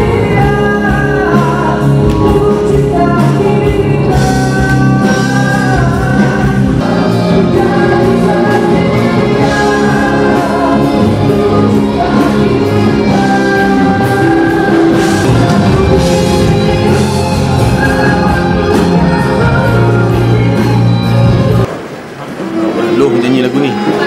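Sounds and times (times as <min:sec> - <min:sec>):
man singing into a microphone: 0:00.0 - 0:21.1
pop backing track: 0:00.0 - 0:21.8.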